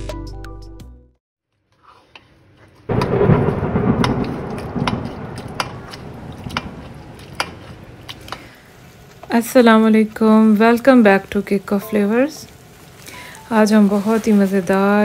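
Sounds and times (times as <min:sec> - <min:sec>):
food sizzling in hot fat: 0:06.4 - 0:15.0.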